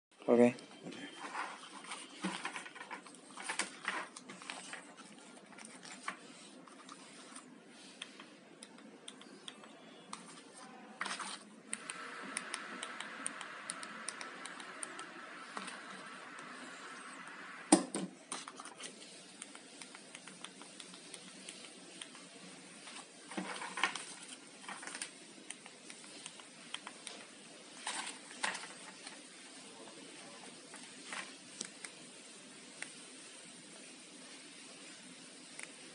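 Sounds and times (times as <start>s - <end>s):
plastic remote controls clicking: 11.1s - 16.5s.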